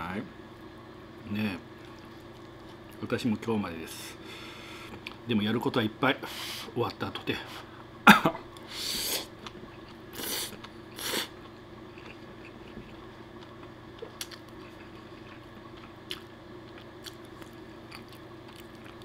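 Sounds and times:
chewing with wet clicks: 0:01.8 - 0:03.0, 0:04.9 - 0:05.2, 0:11.4 - 0:19.0
person slurping spaghetti: 0:10.1 - 0:11.3.

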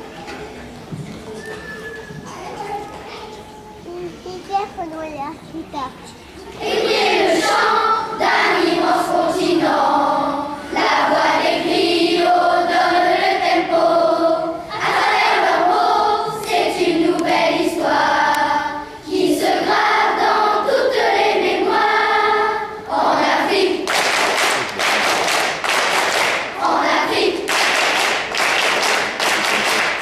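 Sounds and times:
children's choir singing: 0:06.5 - 0:30.0
hand clapping: 0:23.8 - 0:26.5, 0:27.4 - 0:30.0.

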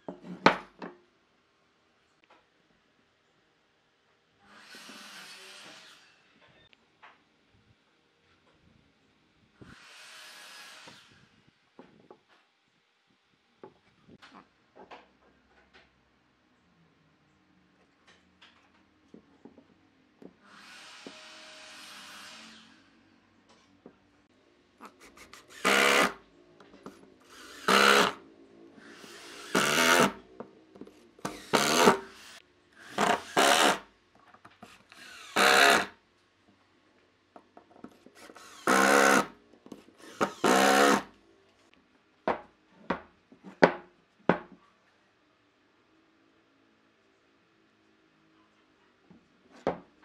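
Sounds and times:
impact driver driving screws into wood: 0:25.5 - 0:26.2, 0:27.3 - 0:28.2, 0:28.9 - 0:30.2, 0:31.2 - 0:33.8, 0:34.9 - 0:35.9, 0:38.2 - 0:39.4, 0:40.0 - 0:41.1.

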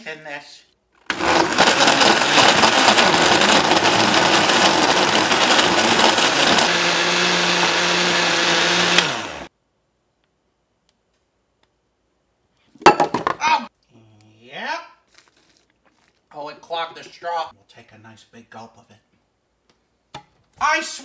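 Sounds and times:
blender running: 0:01.0 - 0:09.5.

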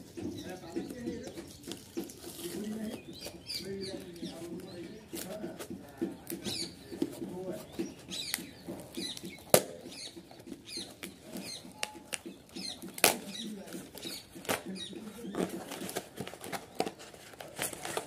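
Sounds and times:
scratching and rustling: 0:00.0 - 0:18.0
cardboard box being handled: 0:00.8 - 0:09.5, 0:10.3 - 0:18.0.

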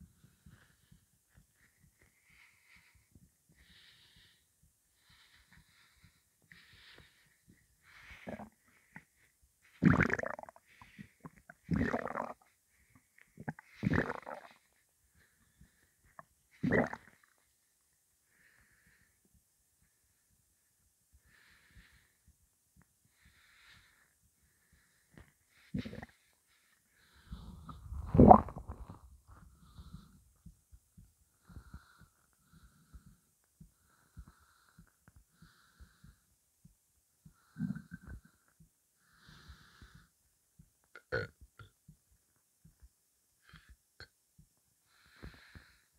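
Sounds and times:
stomach gurgling: 0:08.0 - 0:09.1, 0:09.7 - 0:12.6, 0:13.2 - 0:14.7, 0:16.1 - 0:17.4, 0:25.7 - 0:26.2, 0:27.3 - 0:30.6, 0:37.3 - 0:38.6, 0:40.9 - 0:41.8.

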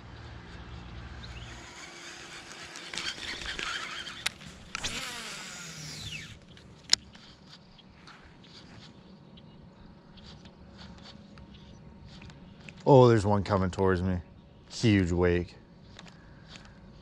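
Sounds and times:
fishing reel spool whirring: 0:00.0 - 0:07.7
reel engaging click: 0:01.5 - 0:07.2.

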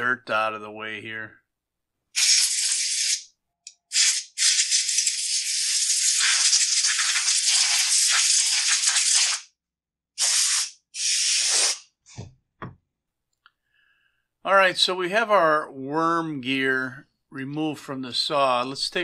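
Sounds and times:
compressed air gun blasting: 0:10.2 - 0:11.9.

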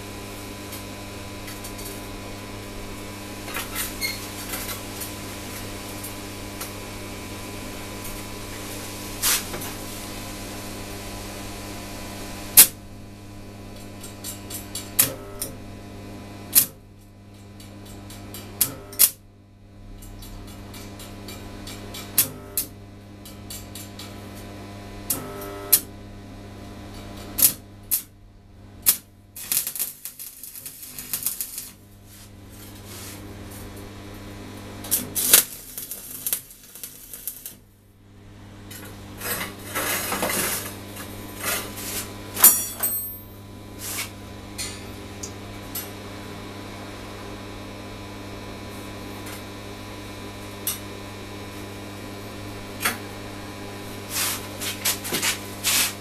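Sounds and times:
low electrical hum: 0:00.0 - 0:56.0
metal rack clinking: 0:42.4 - 0:43.2.

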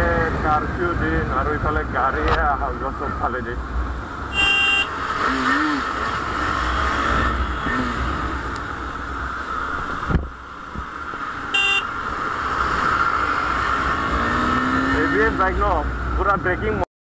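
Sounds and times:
horn beep: 0:04.3 - 0:05.0, 0:11.5 - 0:11.9
wind rushing over camera: 0:08.3 - 0:13.7.

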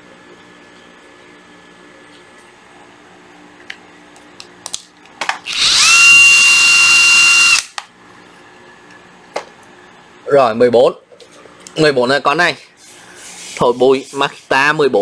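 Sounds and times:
impact driver motor whine: 0:05.4 - 0:07.8.

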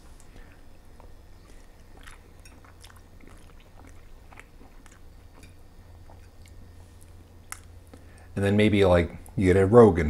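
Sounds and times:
person chewing noodles: 0:00.0 - 0:08.3
low steady hum: 0:00.0 - 0:10.0
wet mouth clicks and smacks: 0:01.0 - 0:08.3.

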